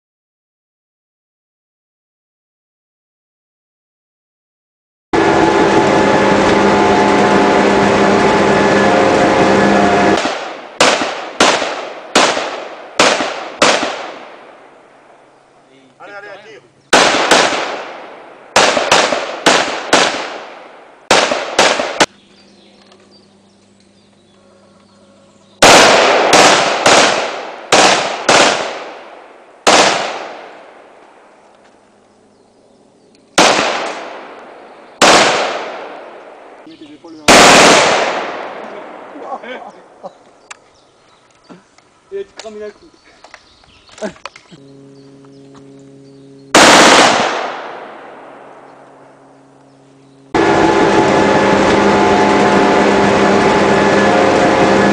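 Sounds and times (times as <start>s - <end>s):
loud steady drone: 5.2s - 40.0s, 44.4s - 54.9s
rifle shots with echo: 10.2s - 14.8s, 16.9s - 22.2s, 25.6s - 30.9s, 33.4s - 39.2s, 46.5s - 48.6s.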